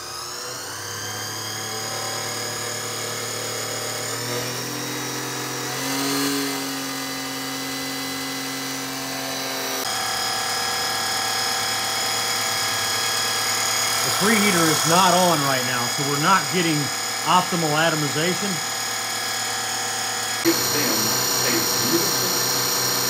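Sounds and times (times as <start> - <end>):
fuel pump humming: 11.4 - 23.0.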